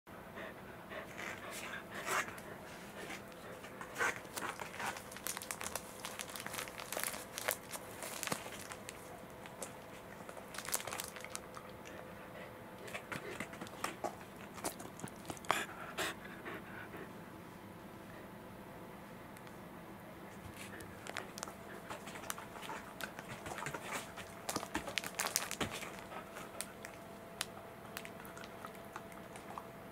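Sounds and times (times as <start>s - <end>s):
dogs panting and licking: 0.4s - 17.1s, 20.4s - 29.9s
plastic bag crinkling: 4.0s - 11.6s, 21.0s - 26.7s.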